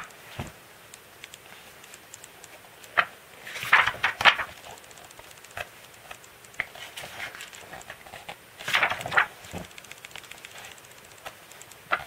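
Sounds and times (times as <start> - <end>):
book pages turning: 2.9 - 5.0, 5.6 - 9.8, 10.4 - 12.0.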